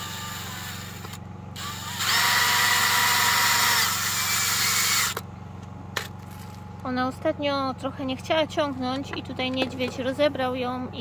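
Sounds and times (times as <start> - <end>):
cordless drill driving screw: 0.0 - 5.2.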